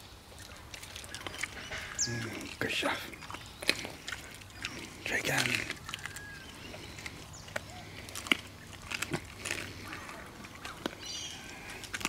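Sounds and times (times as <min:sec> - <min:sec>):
dogs chewing food: 0:00.0 - 0:12.0.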